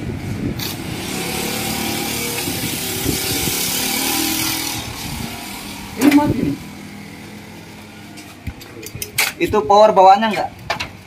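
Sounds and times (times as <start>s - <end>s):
photocopier fans and motors hissing: 0.0s - 8.6s.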